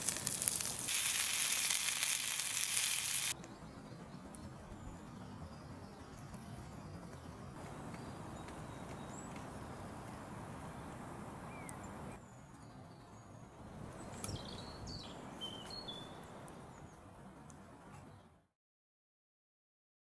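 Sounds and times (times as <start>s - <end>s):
background hiss: 0.0s - 3.4s
small birds chirping: 10.8s - 17.1s.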